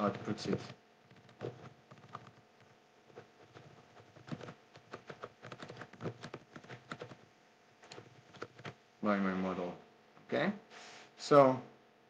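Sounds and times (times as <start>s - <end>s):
typing on keyboard: 0.0s - 7.2s, 7.8s - 8.8s.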